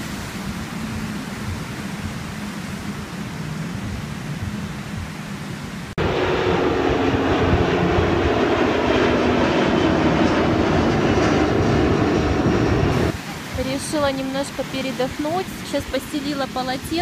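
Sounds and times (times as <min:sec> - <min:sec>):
surf washing on beach: 0:00.0 - 0:08.8, 0:12.8 - 0:17.0
jet airliner passing overhead: 0:05.9 - 0:17.0.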